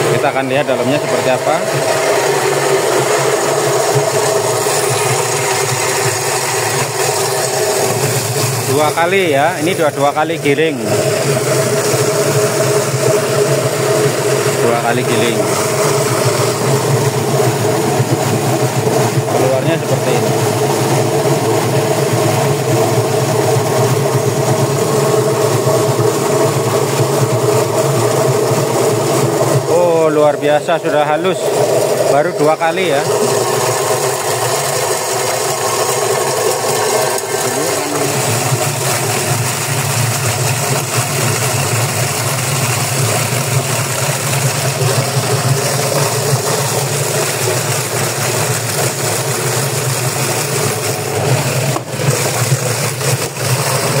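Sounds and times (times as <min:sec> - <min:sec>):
feed chopper motor humming: 0:00.0 - 0:54.0.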